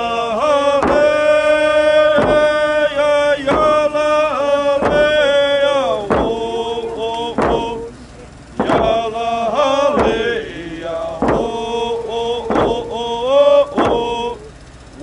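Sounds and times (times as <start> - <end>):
long held sung notes: 0.0 - 15.0
drum struck in slow beat: 0.8 - 4.0, 4.8 - 5.4, 6.0 - 7.9, 8.6 - 9.2, 9.9 - 13.0, 13.6 - 14.5.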